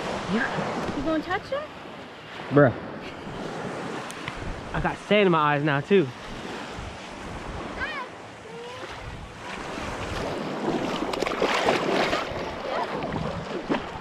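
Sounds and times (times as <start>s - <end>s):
surf waves washing on beach: 0.0s - 14.0s
wind buffeting microphone: 2.8s - 5.2s, 6.1s - 8.0s, 8.6s - 14.0s
water splashing around fish: 8.6s - 14.0s.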